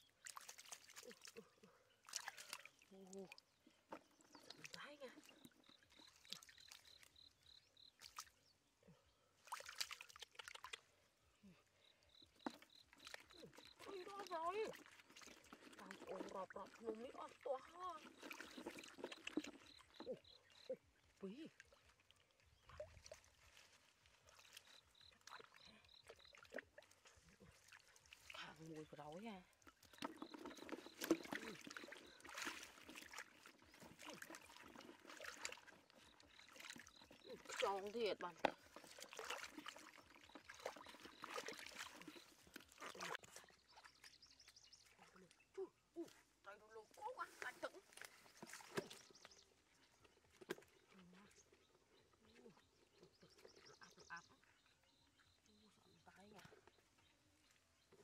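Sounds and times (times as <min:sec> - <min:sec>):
hands splashing in muddy water: 0:00.0 - 0:07.1, 0:09.4 - 0:11.0, 0:12.3 - 0:20.8, 0:29.7 - 0:44.1, 0:47.3 - 0:51.1
faint high chirp: 0:52.0 - 0:57.6.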